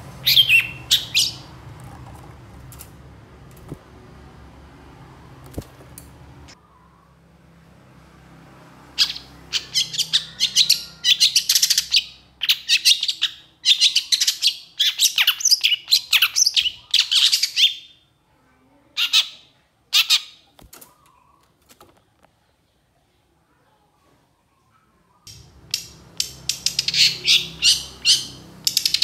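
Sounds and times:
shrike singing: 0.1 - 1.6, 9.0 - 17.9, 25.3 - 29.0.

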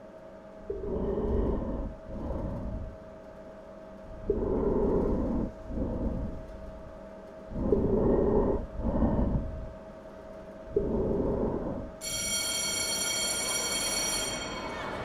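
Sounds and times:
faint steady hum: 0.0 - 15.0
underwater breathing: 0.7 - 3.0, 4.2 - 6.7, 7.5 - 9.7, 10.7 - 12.0.

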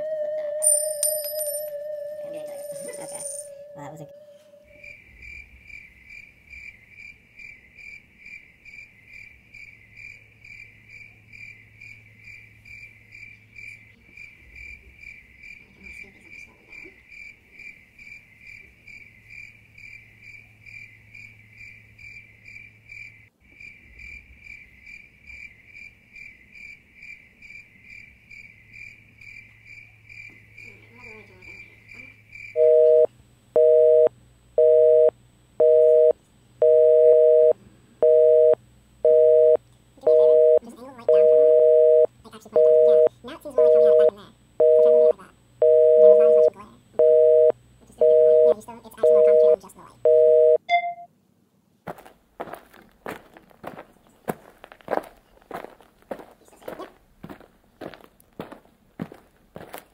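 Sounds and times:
cricket chirping: 0.0 - 51.0
telephone busy signal: 32.6 - 51.1.

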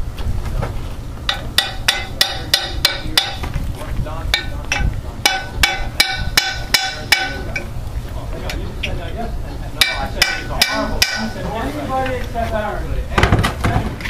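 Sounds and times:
propeller ringing: 1.0 - 13.1
hammer striking metal propeller: 1.3 - 3.6, 4.3 - 7.7, 9.8 - 11.4.

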